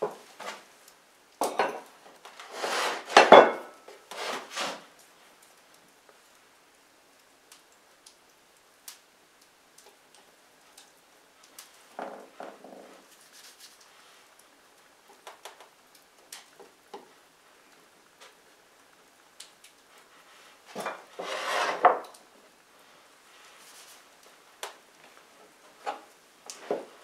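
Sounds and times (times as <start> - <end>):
rubbing scrape: 2.4 - 3.3, 4.1 - 4.9, 13.1 - 13.8, 20.8 - 22.0.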